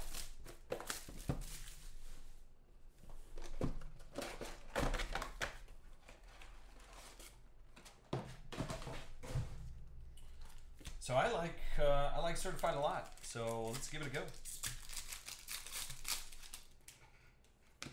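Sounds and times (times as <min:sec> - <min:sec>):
plastic wrap crinkling and tearing: 0:00.0 - 0:01.7, 0:12.3 - 0:17.0.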